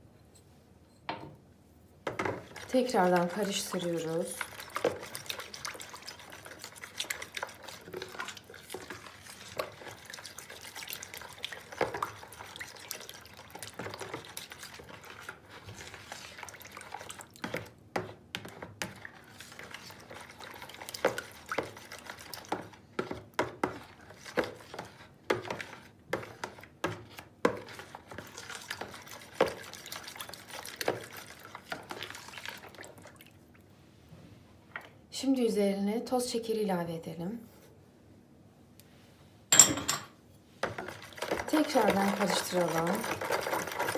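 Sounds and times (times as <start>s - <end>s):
liquid sloshing in bowl: 2.1s - 33.7s, 40.5s - 43.9s.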